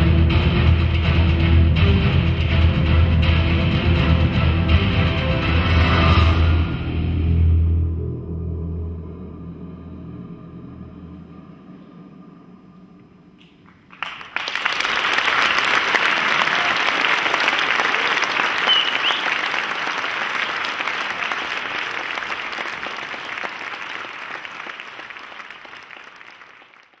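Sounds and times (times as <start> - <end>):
audience applause: 13.4 - 27.0.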